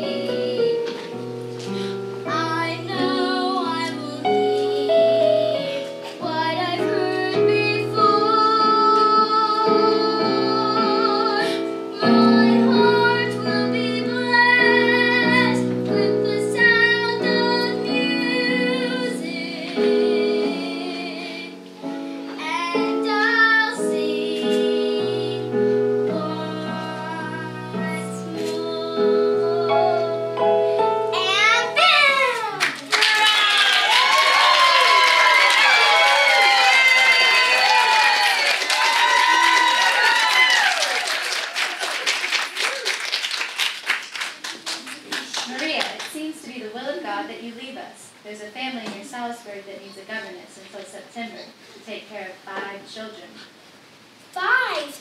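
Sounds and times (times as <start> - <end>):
girl singing: 0.0 - 1.0, 2.2 - 32.7
instrumental accompaniment: 0.0 - 32.9.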